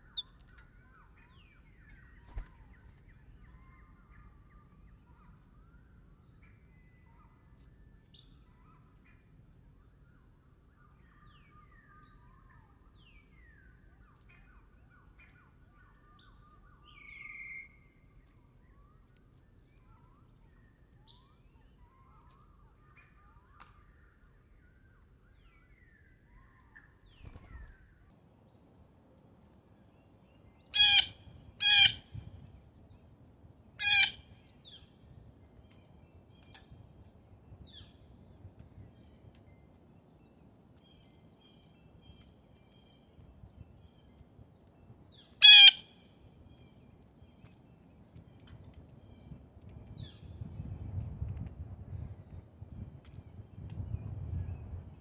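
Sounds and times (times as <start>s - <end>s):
small songbirds chirping: 0.0s - 27.6s, 28.5s - 55.0s
blue jay harsh calls: 30.8s - 32.2s, 33.8s - 34.8s, 45.4s - 45.9s.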